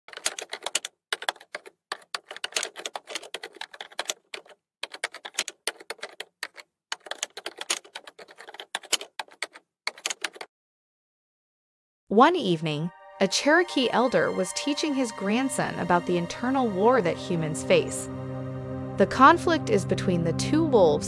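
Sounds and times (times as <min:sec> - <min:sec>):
rapid keystroke clicks: 0:00.1 - 0:10.5.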